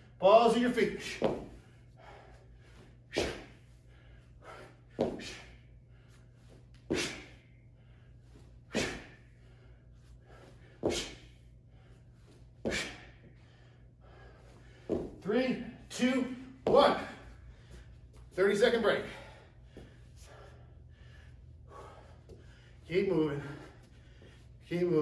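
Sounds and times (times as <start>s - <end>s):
man breathing out hard: 1.5s - 15.2s, 19.0s - 24.6s.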